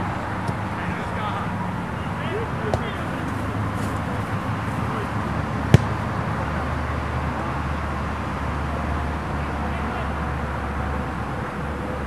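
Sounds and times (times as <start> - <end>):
soccer ball kick thud: 2.6 - 4.1, 5.6 - 6.2.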